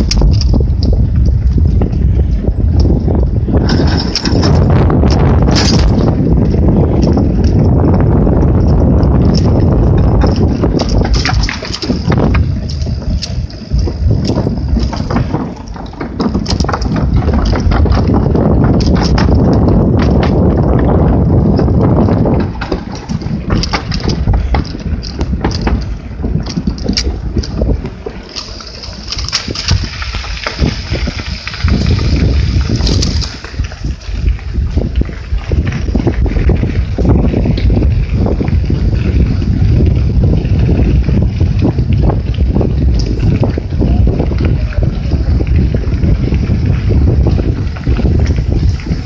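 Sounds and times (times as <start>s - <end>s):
bicycle rattles and clicks: 0.0s - 49.0s
tyres rumbling over trail: 0.0s - 49.0s
wind buffeting microphone: 0.0s - 49.0s
tyres clattering over wooden deck: 3.5s - 6.2s, 9.9s - 31.4s.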